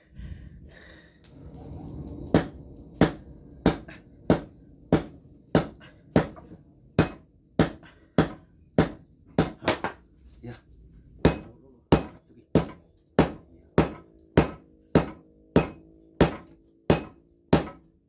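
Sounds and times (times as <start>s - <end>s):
hammer striking steel on anvil: 3.0s - 10.0s, 11.2s - 18.0s.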